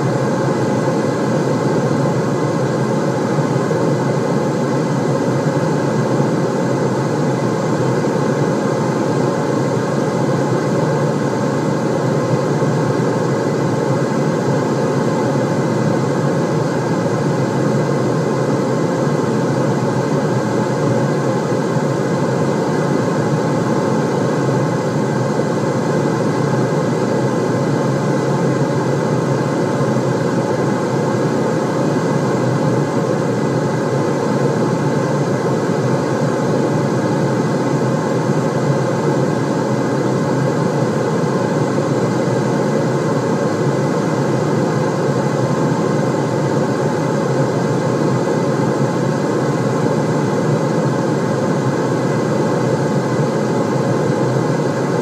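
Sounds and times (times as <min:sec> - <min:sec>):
white noise rush: 0:00.0 - 0:55.0.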